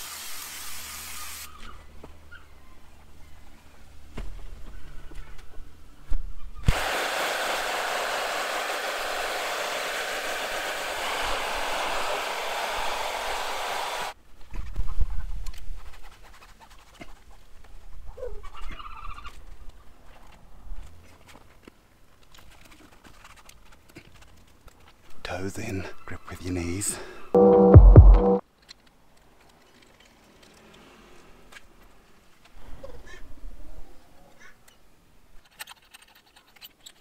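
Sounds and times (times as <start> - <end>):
loud steady hiss: 0.0 - 1.5, 6.7 - 14.2.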